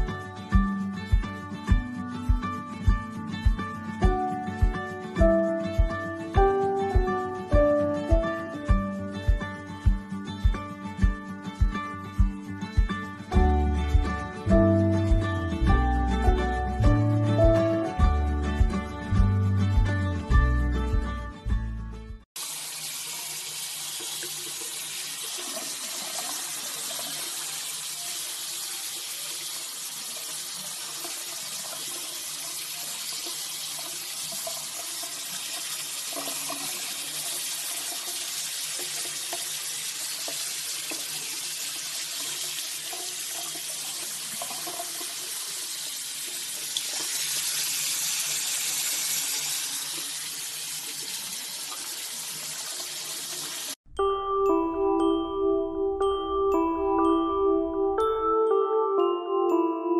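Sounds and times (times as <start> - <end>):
tap water running into sink: 22.4 - 53.8.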